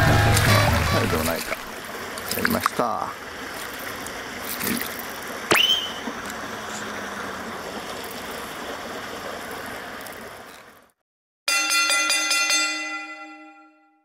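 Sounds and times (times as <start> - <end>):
running water hiss: 0.0 - 11.0.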